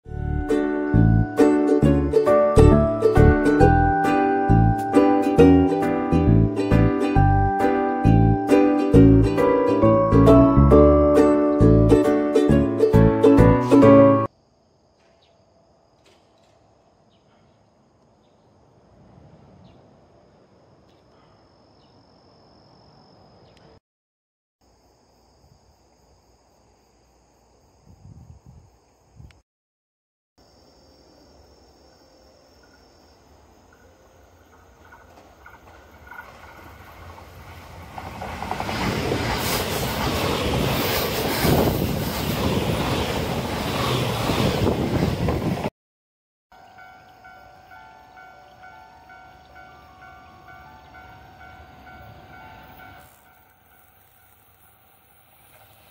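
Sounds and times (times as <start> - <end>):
train passing at speed: 18.7 - 20.5, 32.6 - 45.7, 46.6 - 55.9
insects trilling: 30.4 - 37.8, 46.6 - 55.9.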